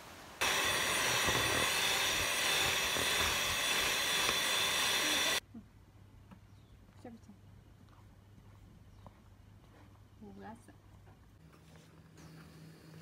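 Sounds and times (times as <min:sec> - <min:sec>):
electric mixer whipping batter: 0:00.4 - 0:05.4.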